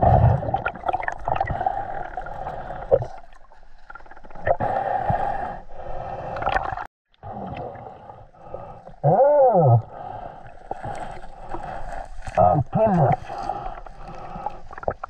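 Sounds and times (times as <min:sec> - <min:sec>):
muffled underwater swimming: 0:00.0 - 0:15.0
voice-like groan: 0:09.0 - 0:09.9.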